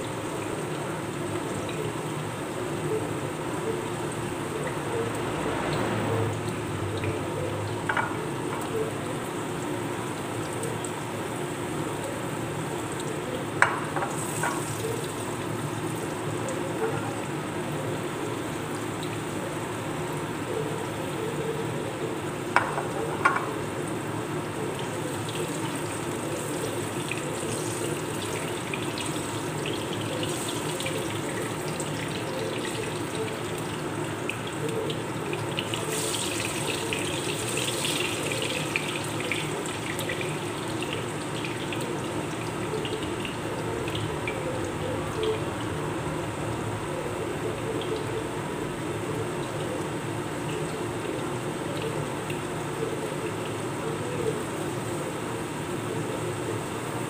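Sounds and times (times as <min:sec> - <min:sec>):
sweet potato slices sizzling in oil: 0:00.0 - 0:45.5.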